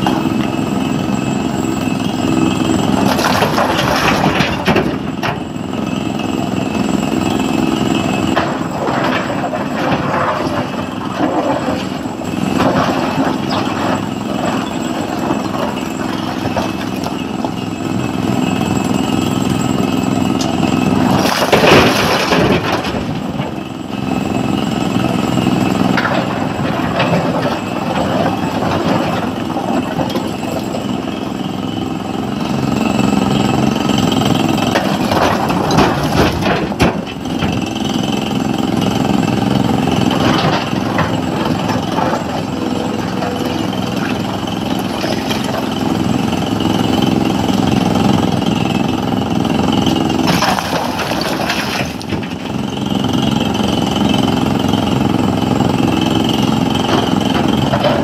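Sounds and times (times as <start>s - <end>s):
excavator diesel engine running: 0.0s - 58.0s
rock falling into steel truck bed: 21.0s - 23.4s, 50.2s - 52.5s.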